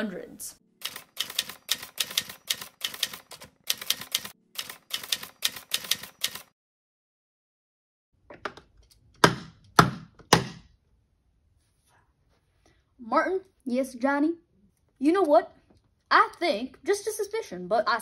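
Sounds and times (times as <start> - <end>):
typewriter keys clacking: 0.8 - 6.5.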